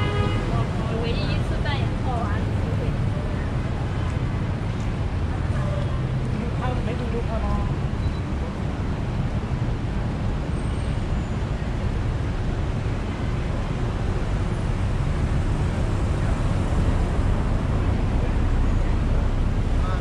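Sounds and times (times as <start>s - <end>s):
road traffic rumble: 0.0s - 20.0s.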